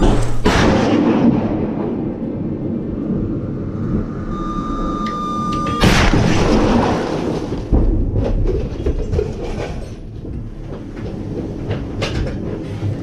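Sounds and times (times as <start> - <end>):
missile firing blast: 0.0 - 4.4, 5.7 - 8.2
knocks and clatter: 5.0 - 13.0.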